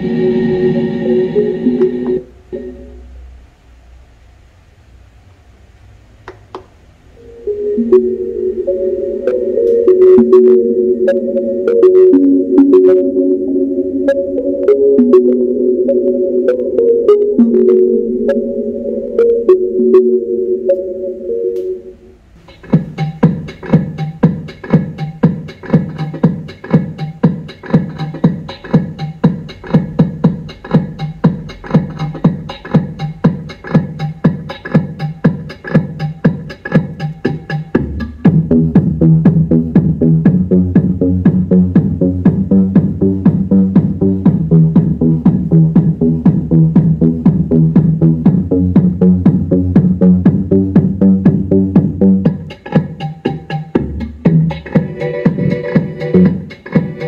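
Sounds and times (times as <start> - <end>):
electronic dance music: 0.0 - 3.0, 7.2 - 57.0
deep bass line: 7.3 - 22.0, 22.8 - 57.0.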